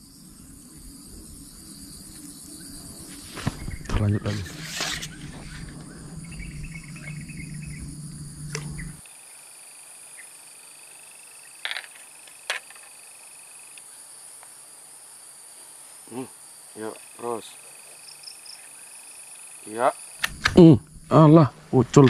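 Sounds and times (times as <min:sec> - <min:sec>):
insect chorus: 0:00.0 - 0:22.0
pulsing insect trill: 0:00.0 - 0:22.0
low rumble: 0:03.7 - 0:09.0, 0:20.3 - 0:21.6
sharp clicks: 0:08.5 - 0:08.8, 0:20.2 - 0:21.0.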